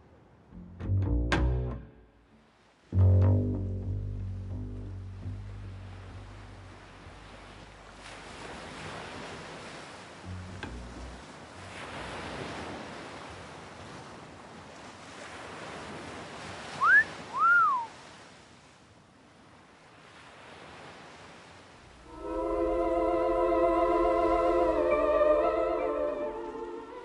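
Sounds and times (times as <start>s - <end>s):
music with long wavering notes: 0.6s - 2.2s, 3.0s - 8.0s, 10.3s - 11.8s, 22.1s - 27.0s
two-note wolf whistle: 16.8s - 17.9s.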